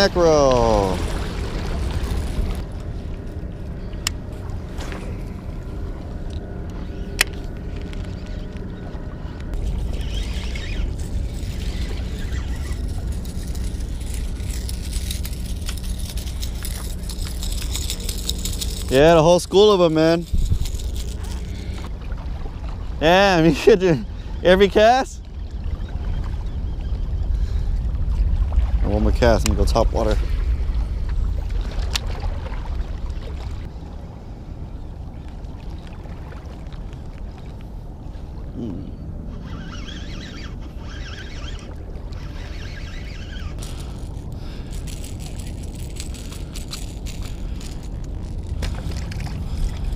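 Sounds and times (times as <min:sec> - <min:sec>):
water lapping on rocks: 0:00.0 - 0:03.3, 0:09.5 - 0:24.6, 0:39.6 - 0:49.9
steady low rumble: 0:00.0 - 0:39.5, 0:40.5 - 0:49.9
fishing reel clicking: 0:09.5 - 0:21.9, 0:39.4 - 0:49.8.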